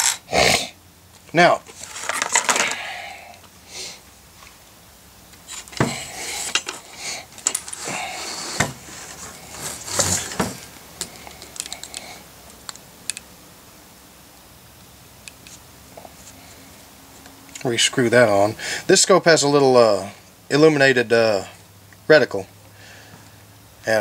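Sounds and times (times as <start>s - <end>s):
rustling: 1.1s - 12.8s.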